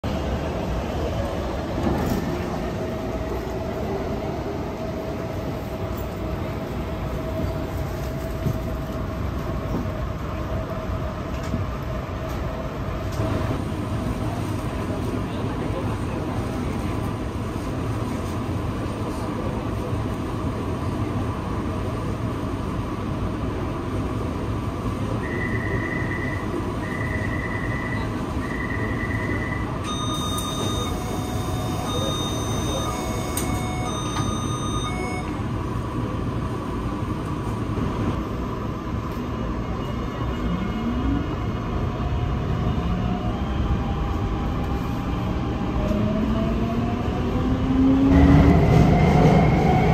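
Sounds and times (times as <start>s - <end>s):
train hum: 0.0s - 49.9s
electronic beeps: 25.5s - 35.3s
door warning chime tones: 28.8s - 35.4s.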